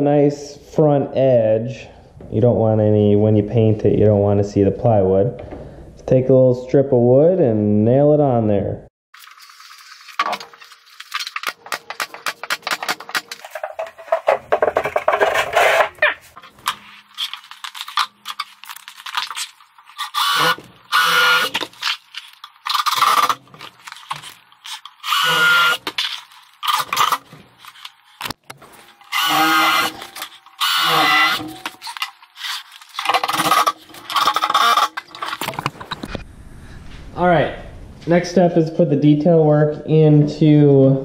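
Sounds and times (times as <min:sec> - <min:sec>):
drill driving screws into wood: 0:20.0 - 0:21.9, 0:22.7 - 0:23.4, 0:25.0 - 0:27.2, 0:29.0 - 0:35.0.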